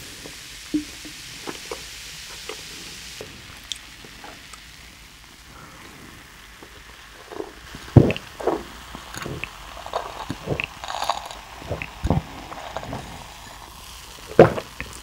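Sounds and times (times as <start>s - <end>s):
person gulping a drink: 7.2s - 15.0s.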